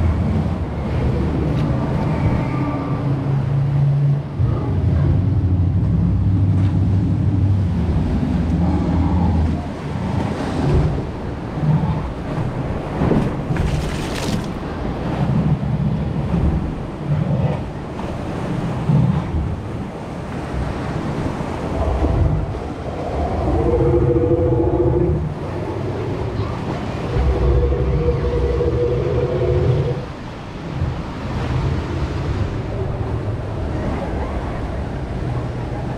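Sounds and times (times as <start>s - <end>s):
deep rumble of river rapids: 0.0s - 35.9s
white water rushing around boat: 0.0s - 35.9s
wind on microphone: 0.0s - 35.9s
dinosaur roar sound effect: 21.8s - 30.1s.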